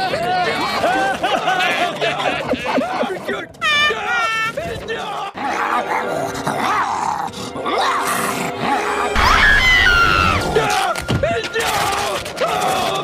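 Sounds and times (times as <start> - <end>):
music: 5.2 - 13.0
cartoon voices grunting and yelling: 5.3 - 10.8
long high scream: 9.2 - 10.8.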